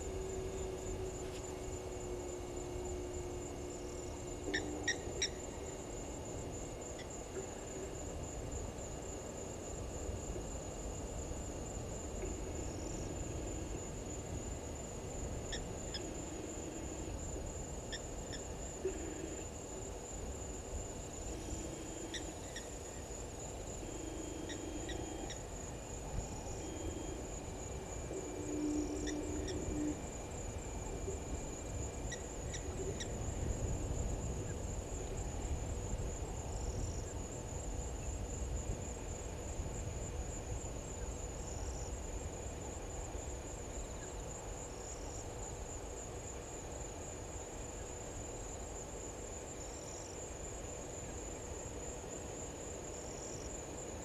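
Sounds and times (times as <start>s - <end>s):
insects trilling: 0.0s - 54.0s
bird hooting: 2.1s - 5.7s, 28.0s - 30.0s.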